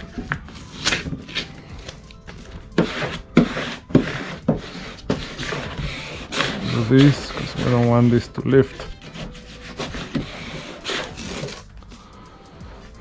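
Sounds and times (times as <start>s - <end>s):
plastic squeegee rubbing on vinyl: 2.8s - 11.6s.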